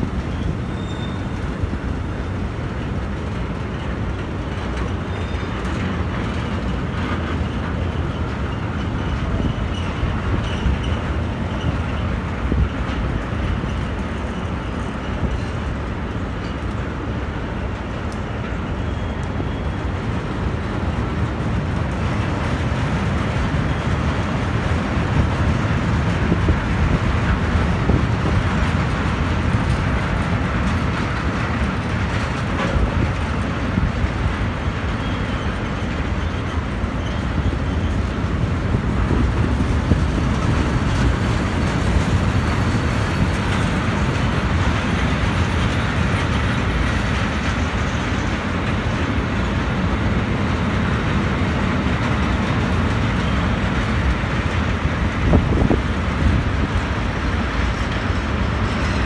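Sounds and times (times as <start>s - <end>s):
freight train rolling past: 0.0s - 59.0s
steel wheels rumbling on rails: 0.0s - 59.0s.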